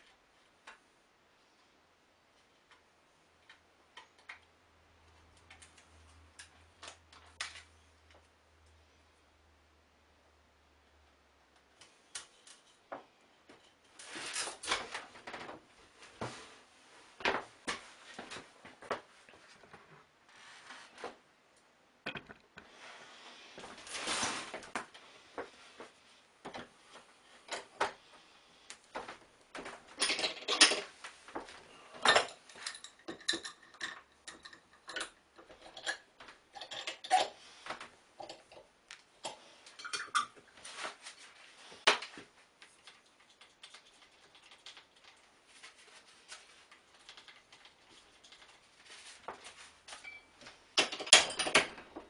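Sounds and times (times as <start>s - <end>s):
wooden knocks and clicks: 22.1s - 22.7s.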